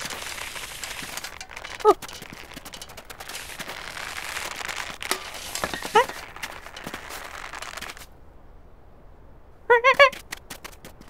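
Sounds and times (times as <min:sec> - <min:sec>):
crackling hiss with clicks: 0:00.0 - 0:08.2.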